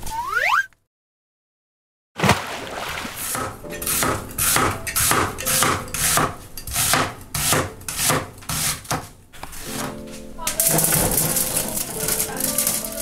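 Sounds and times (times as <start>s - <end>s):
cleaver slicing onion on board: 3.2s - 10.0s.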